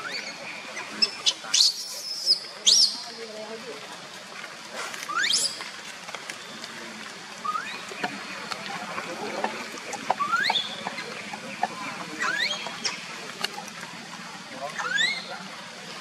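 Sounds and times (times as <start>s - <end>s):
baby monkey squealing: 14.8s - 15.3s.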